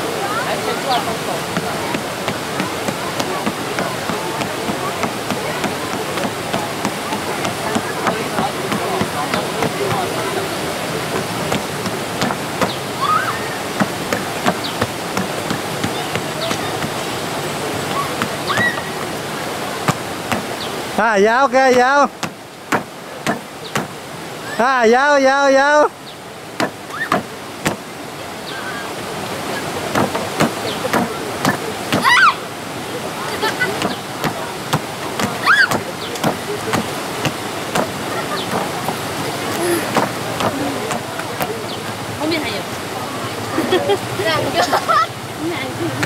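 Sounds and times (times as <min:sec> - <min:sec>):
river water rushing: 0:00.0 - 0:46.0
footsteps on wooden planks: 0:01.2 - 0:21.0, 0:21.7 - 0:24.0, 0:26.6 - 0:27.9, 0:29.8 - 0:32.2, 0:33.4 - 0:42.1.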